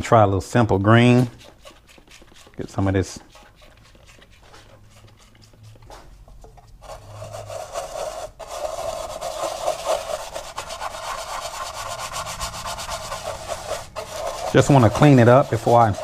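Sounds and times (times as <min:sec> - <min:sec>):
brush scrubbing wet metal plate: 0:00.1 - 0:16.0.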